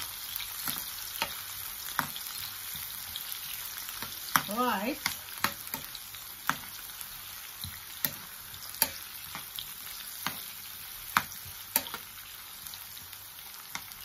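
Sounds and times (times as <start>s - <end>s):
onions sizzling in hot oil: 0.0s - 14.0s
spoon scraping a frying pan: 0.6s - 6.9s, 7.6s - 12.3s.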